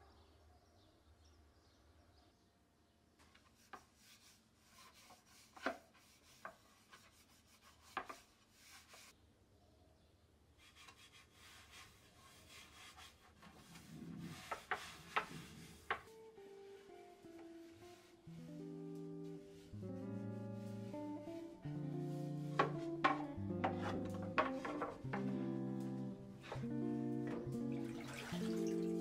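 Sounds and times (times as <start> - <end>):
palm rubbing oiled wood: 3.3 - 9.2, 10.6 - 29.0
wooden trays knocking: 22.5 - 25.4.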